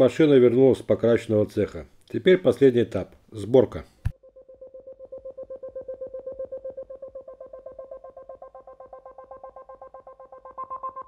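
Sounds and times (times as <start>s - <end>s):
pulsing synthesizer music: 4.2s - 11.0s.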